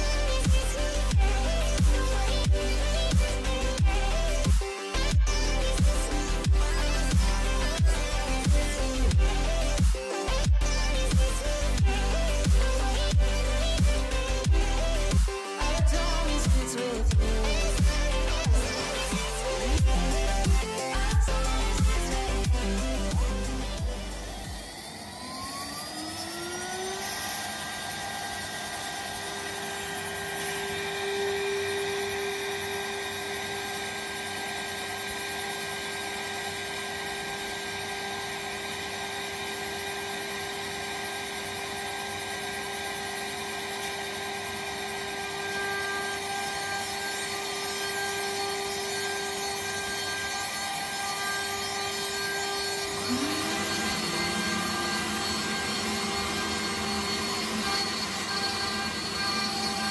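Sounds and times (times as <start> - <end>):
spindle motor whine: 0.0 - 59.9
rising tone: 5.0 - 31.4, 51.5 - 59.9.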